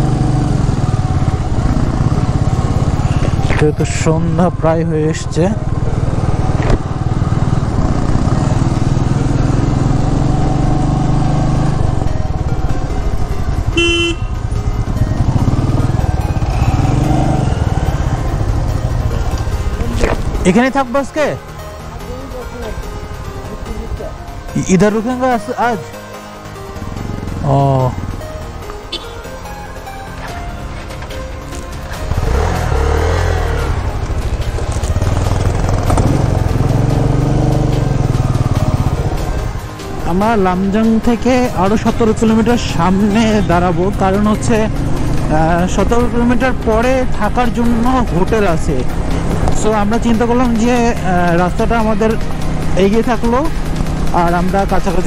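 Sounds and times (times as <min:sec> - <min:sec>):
motorcycle engine running: 0:00.0 - 0:24.7, 0:26.0 - 0:55.0
short horn beep: 0:13.8 - 0:14.4, 0:28.9 - 0:29.3.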